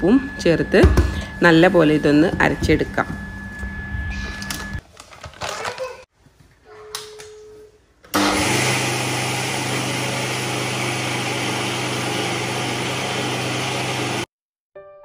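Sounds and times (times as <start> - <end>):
mixer grinder motor grinding: 8.1 - 14.3.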